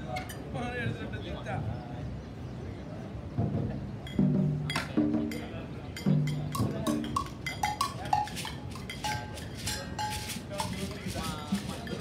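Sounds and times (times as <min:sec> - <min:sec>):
light taps on hand percussion: 0:04.7 - 0:12.0.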